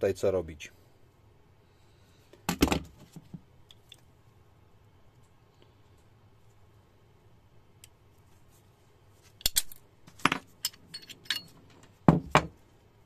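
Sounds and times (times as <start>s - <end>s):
pistol parts clicking and clinking: 9.4s - 11.9s.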